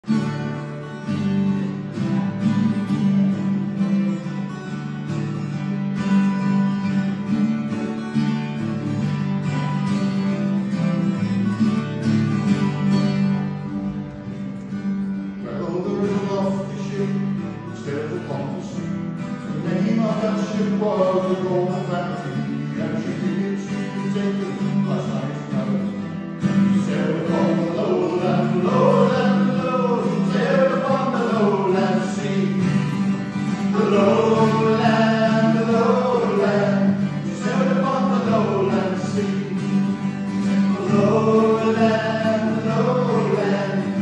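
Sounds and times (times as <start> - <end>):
acoustic guitars strumming: 0.0 - 44.0
man singing: 15.4 - 44.0.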